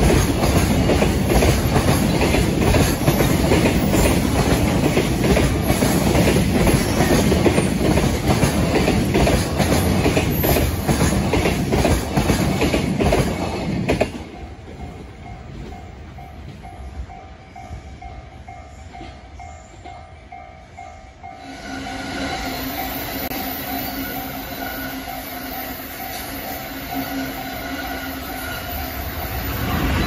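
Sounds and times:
freight train wagons clattering: 0:00.0 - 0:20.5.

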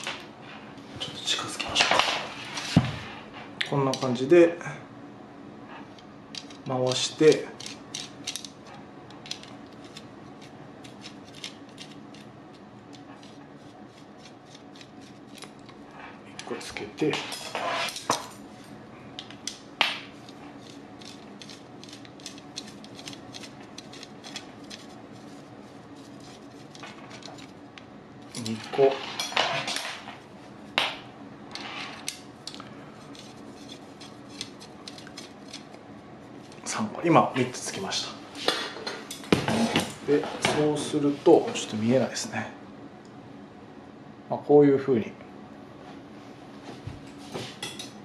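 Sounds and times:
metal threads scraping: 0:09.2 - 0:18.8, 0:20.1 - 0:27.6, 0:28.2 - 0:30.3, 0:31.5 - 0:35.8
metal parts clinking and scraping: 0:28.3 - 0:30.1.

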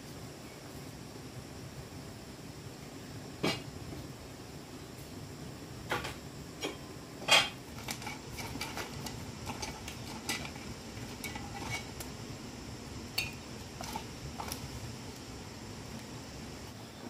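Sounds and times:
kitchenware clinking and knocking: 0:05.9 - 0:12.0.

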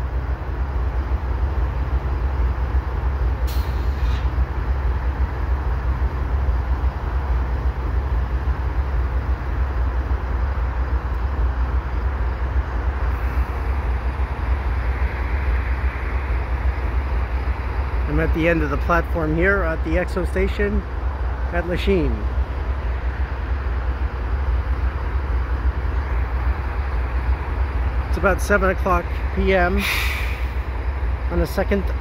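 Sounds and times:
locomotive engine rumbling: 0:00.0 - 0:32.0
air hiss: 0:29.8 - 0:30.6.

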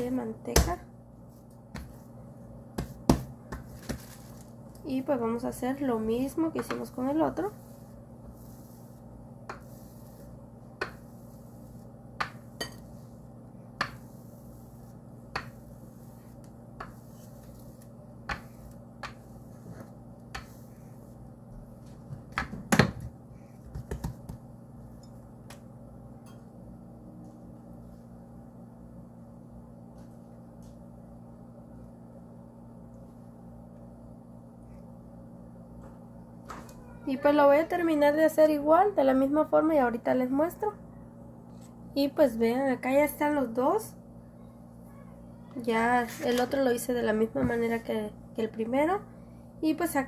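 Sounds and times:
rolling pin knocking on wooden board: 0:02.8 - 0:04.0, 0:13.8 - 0:14.1.

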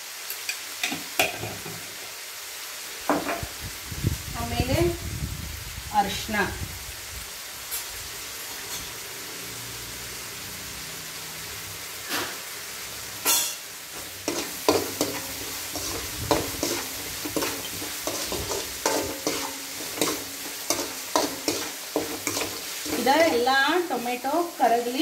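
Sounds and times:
food sizzling in a pan: 0:00.0 - 0:25.0
ladle scraping a pan: 0:13.3 - 0:23.5.

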